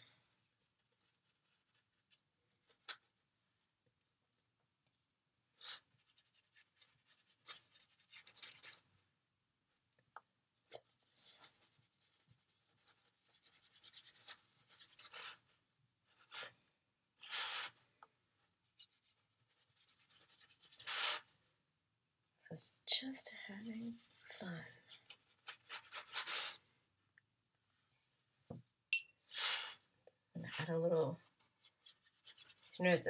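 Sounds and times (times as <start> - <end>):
paintbrush brushing on paper: 0.4 - 3.3, 5.5 - 8.8, 10.8 - 16.6, 17.2 - 17.8, 18.4 - 21.3, 24.9 - 26.6, 31.3 - 33.0.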